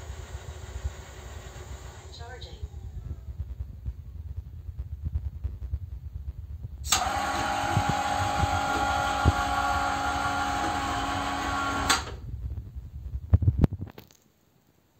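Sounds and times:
electric motor whirring: 6.9 - 12.1.

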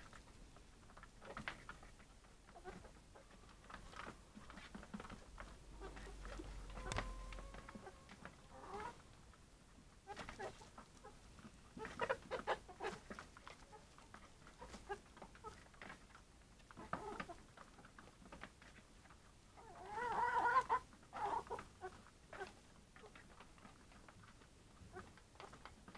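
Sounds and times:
young hens calling: 0.1 - 9.4, 10.0 - 15.7, 19.6 - 23.4.

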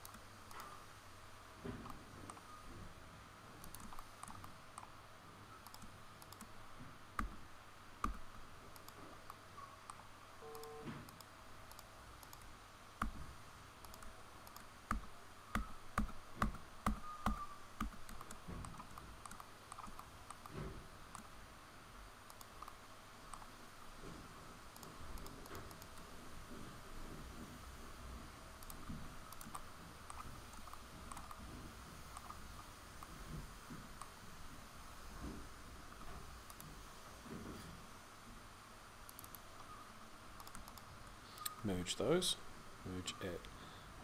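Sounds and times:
keyboard and mouse clicking: 0.0 - 0.7, 3.6 - 5.0, 5.6 - 6.6, 7.2 - 7.4, 8.0 - 13.2, 13.8 - 21.3, 22.3 - 23.6, 24.7 - 26.0, 28.6 - 31.4, 32.2 - 32.4, 39.1 - 39.8, 40.4 - 41.6.

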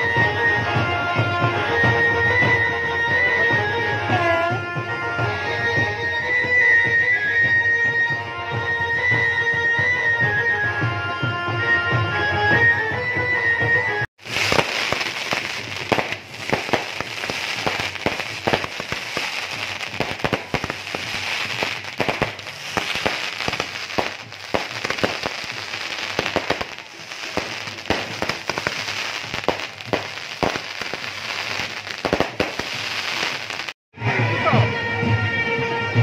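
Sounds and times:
fireworks bangs and pops: 14.2 - 33.8
fireworks crackling: 14.2 - 33.8.

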